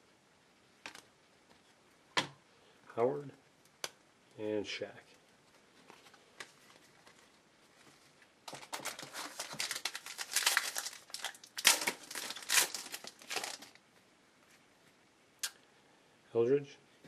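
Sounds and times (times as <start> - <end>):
foil wrapper crinkling and tearing: 8.4 - 13.8.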